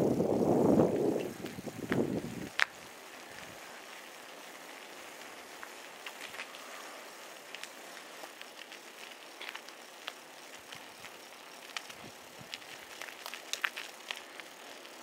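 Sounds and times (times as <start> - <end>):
faint steady hiss: 0.0 - 15.0
light ticks: 0.9 - 4.0, 4.8 - 6.8, 7.5 - 15.0.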